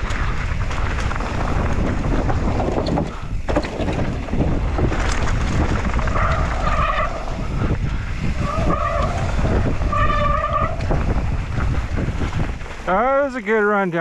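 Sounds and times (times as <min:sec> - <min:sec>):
wind buffeting microphone: 0:00.0 - 0:13.3
bike tyres rumbling over rough ground: 0:00.0 - 0:14.0
disc brakes squealing: 0:08.4 - 0:10.9.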